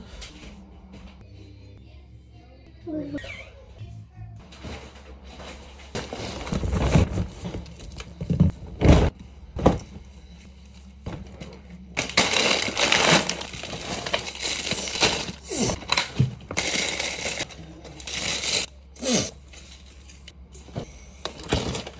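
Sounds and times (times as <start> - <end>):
plastic packaging crinkling: 12.0 - 18.7.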